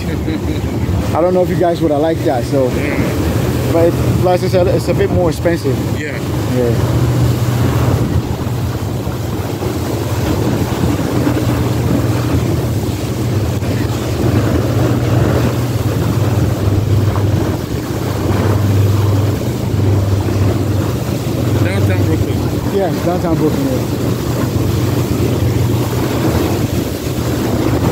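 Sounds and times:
boat engine drone: 0.0s - 27.9s
choppy water rushing: 0.0s - 27.9s
wind on microphone: 0.0s - 27.9s.

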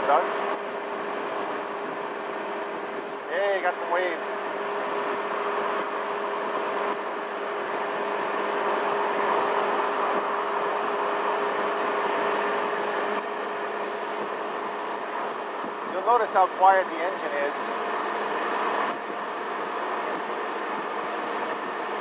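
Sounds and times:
scooter engine hum: 0.0s - 16.7s
wind and road noise: 0.0s - 22.0s.

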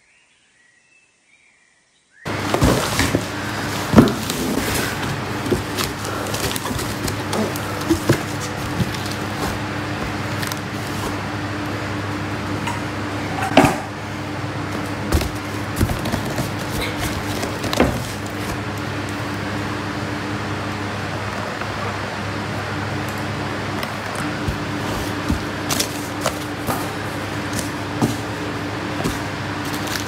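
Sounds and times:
steady background hum: 2.2s - 30.0s
cardboard box knocks: 2.3s - 10.4s, 14.8s - 18.7s
cardboard and plastic rustling: 2.3s - 12.0s, 14.5s - 19.7s, 23.1s - 30.0s.

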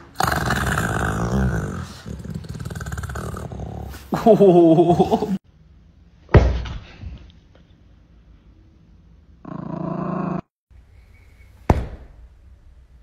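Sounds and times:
dog growling: 0.0s - 4.1s, 9.4s - 10.5s
sudden thump: 11.7s - 12.2s.

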